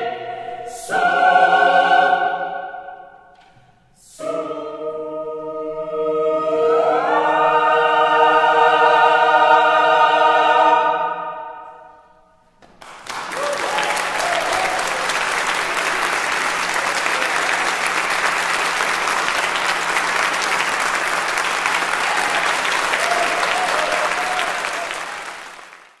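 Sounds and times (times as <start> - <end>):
audience applauding in echoing hall: 12.6 - 26.0.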